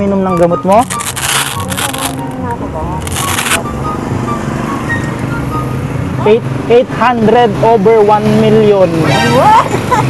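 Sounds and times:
background music: 0:00.0 - 0:06.7
hook-and-loop strap rasping: 0:00.8 - 0:02.2, 0:03.0 - 0:03.6.

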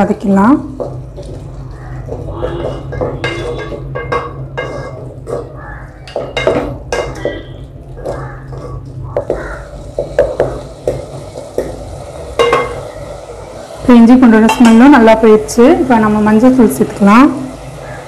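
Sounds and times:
paste frying in oil: 0:00.0 - 0:18.0
spatula scraping metal pot: 0:01.2 - 0:05.8.

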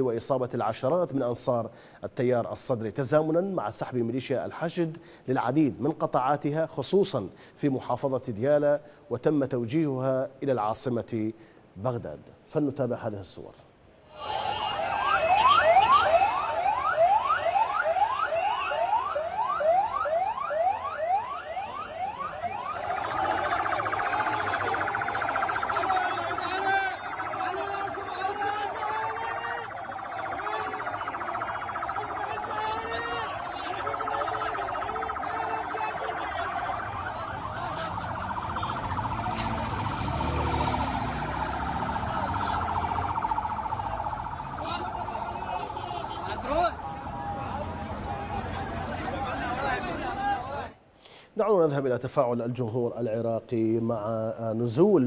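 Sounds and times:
siren rising whoop: 0:14.2 - 0:49.8
crowd voices: 0:21.4 - 0:50.8.

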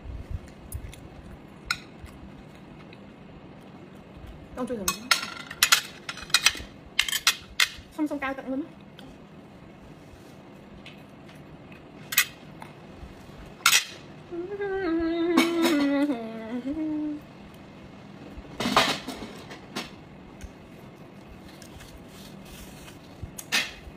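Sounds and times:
plates and cutlery clattering: 0:04.9 - 0:07.8
woman humming a tune: 0:14.3 - 0:17.3.

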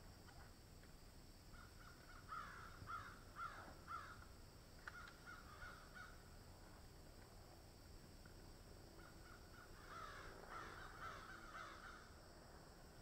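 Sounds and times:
faint bird calls: 0:01.5 - 0:06.4, 0:08.9 - 0:12.2.

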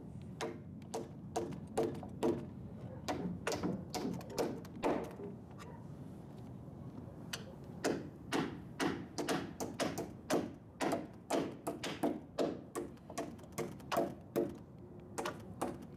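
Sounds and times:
hammer driving nails into wood: 0:03.1 - 0:05.1, 0:07.8 - 0:14.6, 0:15.2 - 0:15.9.

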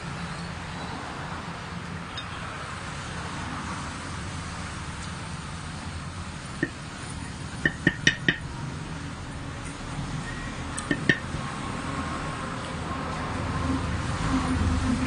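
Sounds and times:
tableware clinking: 0:07.6 - 0:08.4, 0:10.9 - 0:11.4.

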